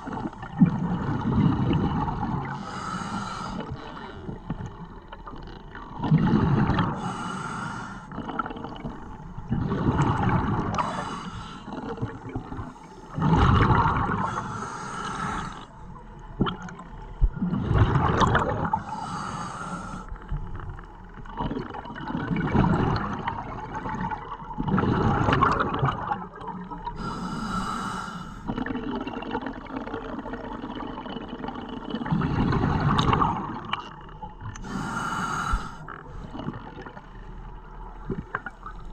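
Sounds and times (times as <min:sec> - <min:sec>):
bubbles bursting underwater: 0:00.0 - 0:02.6, 0:08.2 - 0:10.8, 0:13.1 - 0:14.3, 0:16.4 - 0:18.8, 0:21.3 - 0:26.9, 0:28.5 - 0:34.0.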